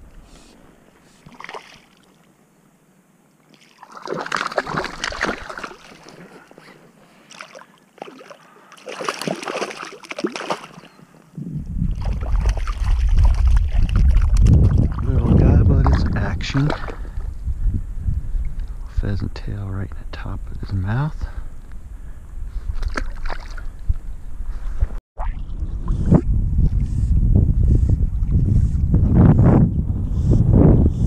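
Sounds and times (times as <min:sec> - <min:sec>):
water splashing and sloshing: 0:00.9 - 0:02.4, 0:03.4 - 0:11.2, 0:11.8 - 0:17.3, 0:22.6 - 0:26.8.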